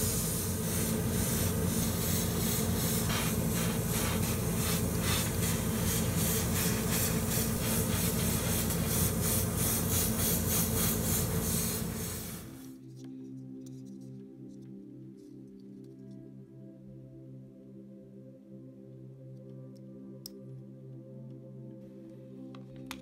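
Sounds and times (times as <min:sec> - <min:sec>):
airbrush spraying hiss: 0:00.0 - 0:12.8
steady low hum: 0:00.0 - 0:12.8.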